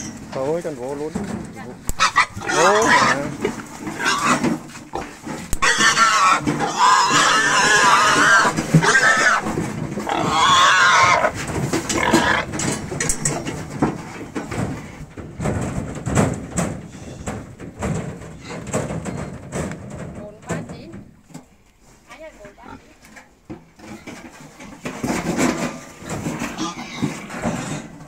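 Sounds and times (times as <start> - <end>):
pigs squealing: 1.9 - 12.5, 26.4 - 27.8.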